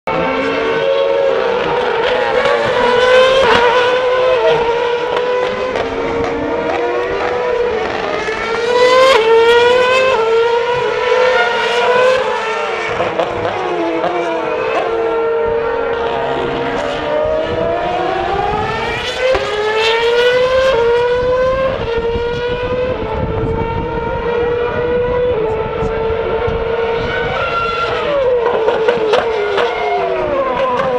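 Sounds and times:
racing cars accelerating: 0.1s - 30.9s.

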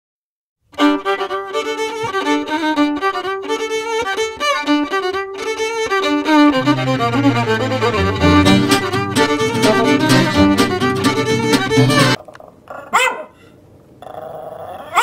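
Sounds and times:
instrumental background music: 0.8s - 12.2s.

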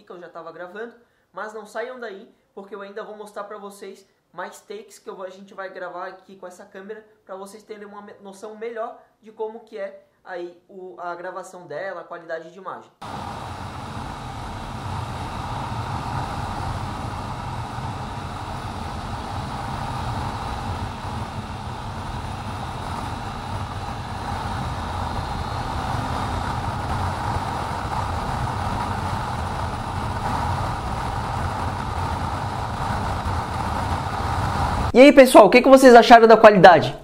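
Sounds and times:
motorcycle engine: 13.0s - 34.9s
wind noise: 13.0s - 35.0s.

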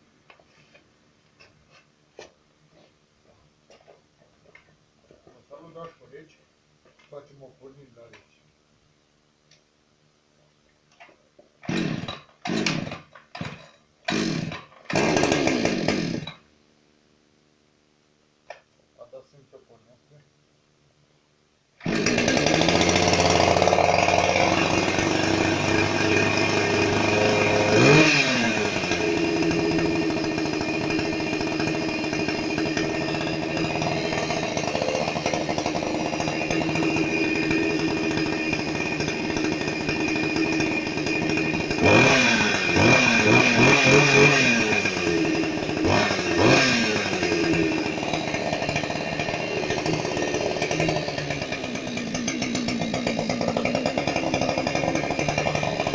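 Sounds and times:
chainsaw idling and revving: 11.6s - 16.4s, 21.8s - 55.9s.

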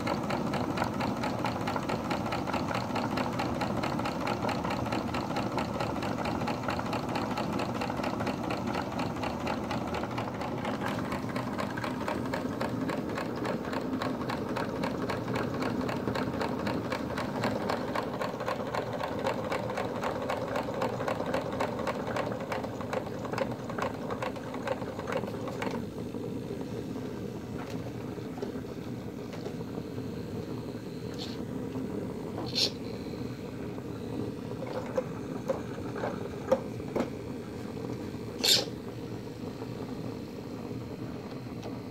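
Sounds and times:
model steam engine running: 0.0s - 28.2s.

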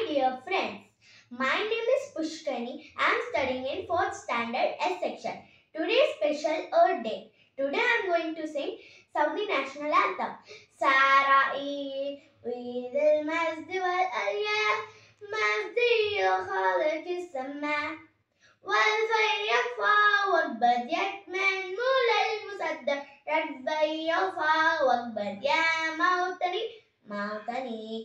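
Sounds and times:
girl singing unaccompanied: 9.0s - 17.9s.

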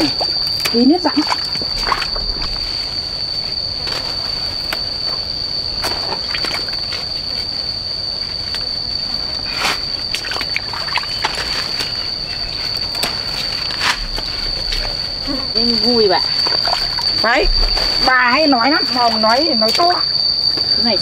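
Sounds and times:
cicadas droning: 0.0s - 21.0s.

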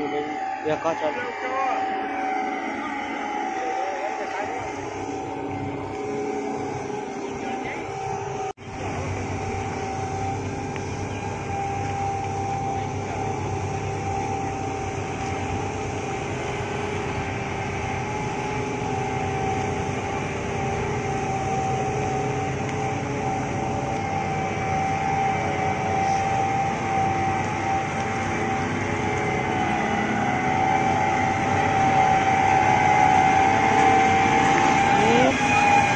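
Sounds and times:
combine harvester engine drone: 0.0s - 35.9s
high steady whine: 0.0s - 35.9s.

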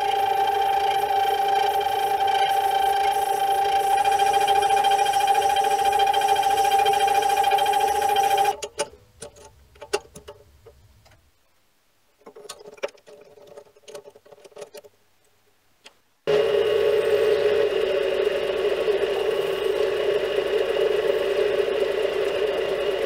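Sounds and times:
lathe running with whine: 0.0s - 8.6s, 16.3s - 23.0s.

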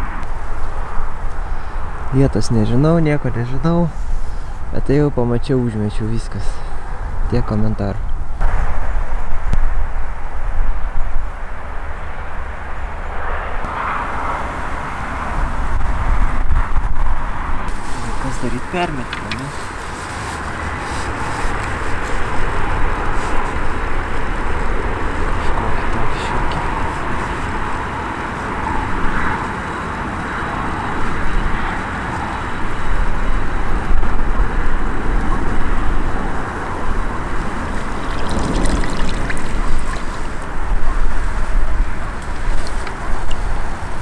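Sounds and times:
wind buffeting microphone: 0.0s - 44.0s
river water lapping: 17.7s - 30.0s, 37.0s - 41.0s.

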